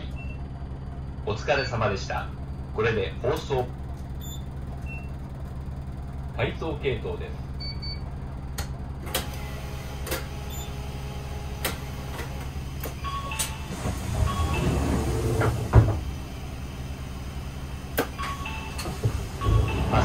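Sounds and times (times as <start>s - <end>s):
diesel engine idling: 0.0s - 20.0s
rumble: 0.0s - 20.0s
short beeps: 4.2s - 5.2s.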